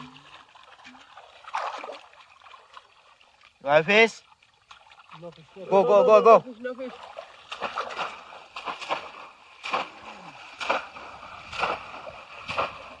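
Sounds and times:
fish trap splashing in water: 0:00.0 - 0:02.9, 0:06.6 - 0:13.0.

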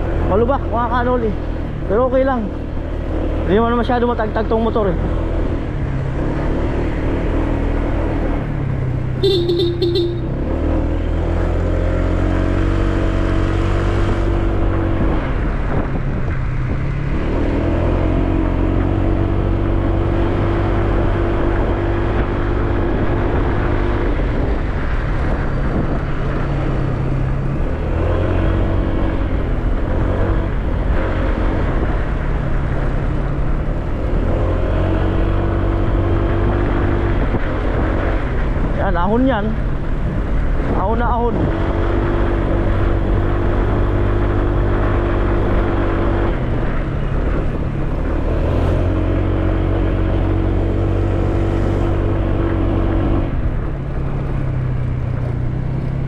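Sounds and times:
motorcycle engine revving: 0:01.9 - 0:38.5
horn toot: 0:09.2 - 0:10.4.

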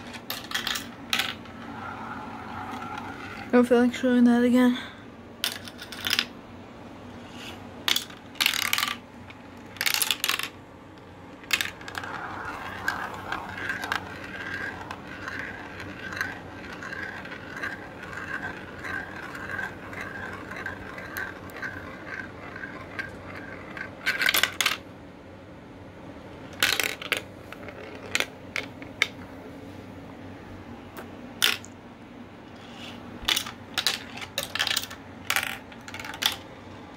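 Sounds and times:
marble clacking through plastic tubes: 0:00.0 - 0:03.5, 0:07.4 - 0:10.6, 0:11.4 - 0:24.8, 0:26.6 - 0:29.2, 0:33.2 - 0:36.5
marble whirring round funnel: 0:00.0 - 0:04.0, 0:11.2 - 0:24.8.

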